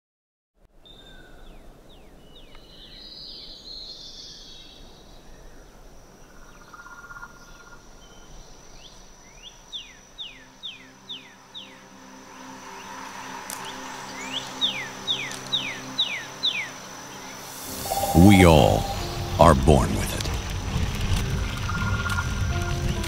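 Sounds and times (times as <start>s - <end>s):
low outdoor hiss: 0.6s - 23.0s
high insect trill: 8.5s - 19.4s.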